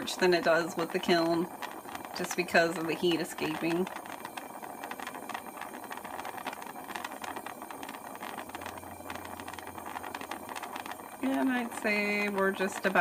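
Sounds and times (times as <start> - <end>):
gas torch flame hissing: 0.0 - 13.0.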